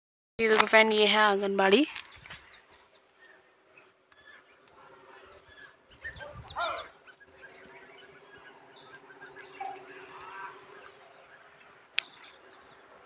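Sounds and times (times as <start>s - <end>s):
faint bird chirps: 1.8s - 13.0s
steady low hum: 2.0s - 13.0s
loud animal call: 4.2s - 11.7s.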